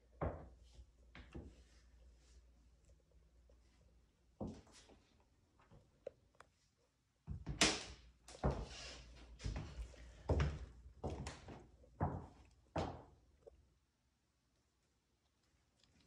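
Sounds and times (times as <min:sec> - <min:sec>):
footsteps on hardwood floor: 0:08.3 - 0:13.2.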